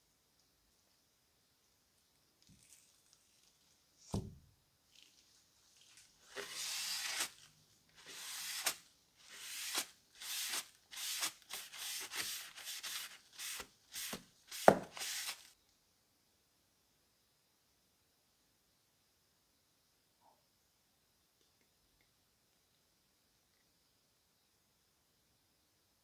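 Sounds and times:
paper towel rubbing blade: 0:06.3 - 0:07.4, 0:08.0 - 0:15.5.

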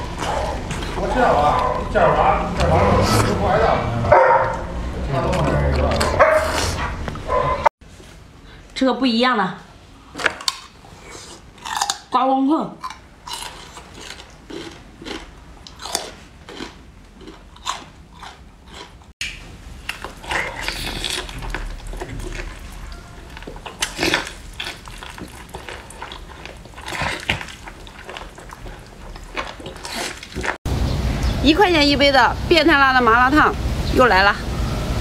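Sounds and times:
person chewing food: 0:00.0 - 0:01.8, 0:10.4 - 0:12.1, 0:12.8 - 0:30.6.

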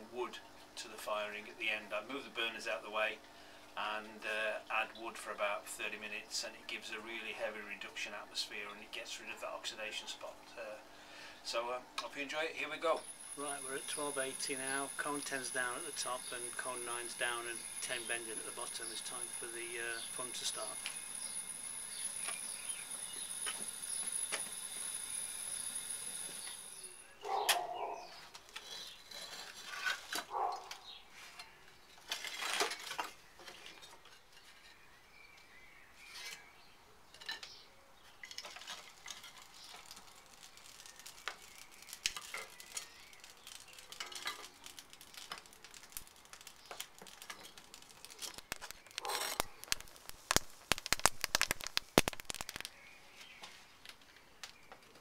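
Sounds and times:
burning wood crackling: 0:10.6 - 0:31.0, 0:38.1 - 0:54.9
burner hiss: 0:12.9 - 0:27.1, 0:39.8 - 0:52.7
wood and kiln parts clattering: 0:13.0 - 0:21.0, 0:28.3 - 0:30.8, 0:31.9 - 0:34.8, 0:37.1 - 0:37.6, 0:38.2 - 0:52.7.

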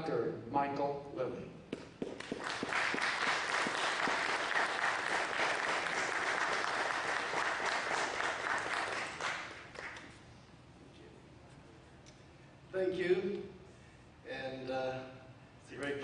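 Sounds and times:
audience applauding: 0:02.1 - 0:10.2.

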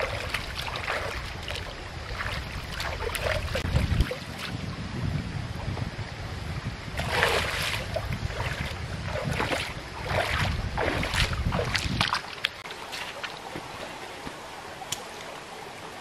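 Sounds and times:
feet splashing in stream: 0:00.0 - 0:04.6, 0:07.0 - 0:15.3
wind buffeting microphone: 0:00.0 - 0:12.6
stream trickling: 0:00.0 - 0:16.0.

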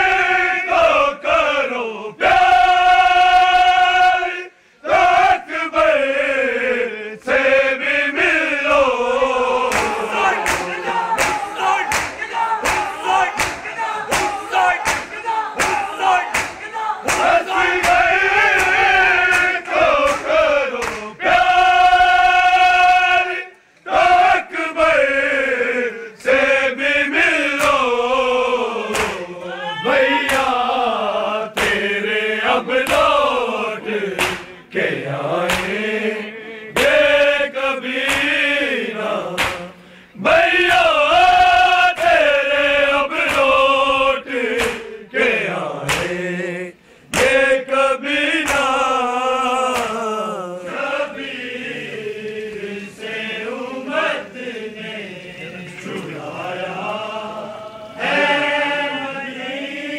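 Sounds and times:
men chanting in unison: 0:00.0 - 0:59.9
hands striking chests: 0:09.7 - 0:18.0.

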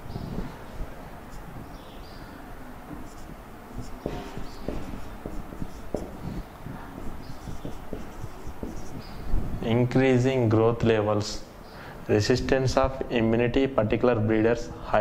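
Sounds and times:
marker squeaking on whiteboard: 0:01.3 - 0:01.8, 0:02.9 - 0:09.5.

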